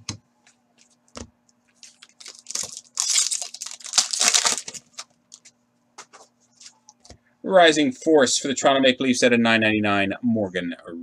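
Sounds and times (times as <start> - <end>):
foil wrapper crinkling: 1.8 - 5.5.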